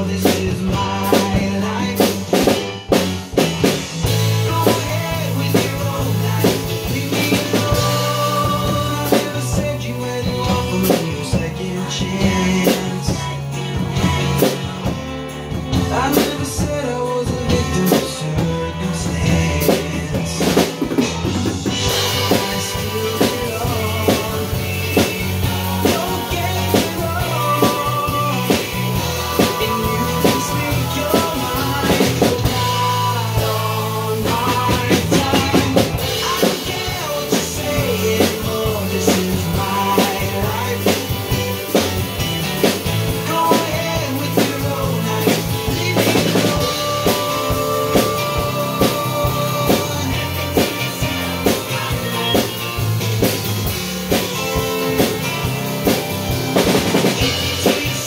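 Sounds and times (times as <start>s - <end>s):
drum kit with cymbals: 0.0s - 58.0s
recorded song with melody: 0.0s - 58.0s.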